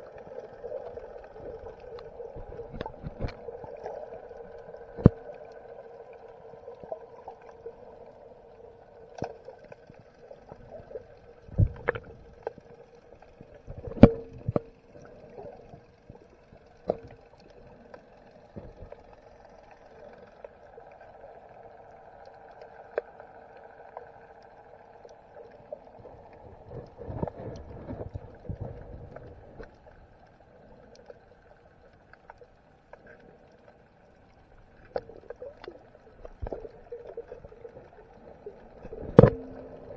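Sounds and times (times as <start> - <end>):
muffled underwater hum: 0.0 - 39.9
underwater clicks and knocks: 2.0 - 3.4, 4.9 - 5.3, 11.5 - 12.6, 13.5 - 15.0, 15.6 - 17.5, 34.8 - 39.9.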